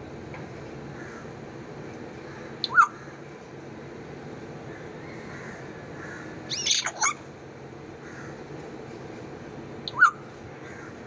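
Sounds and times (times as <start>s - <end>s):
parrot squawking: 2.6s - 3.0s, 6.5s - 7.2s.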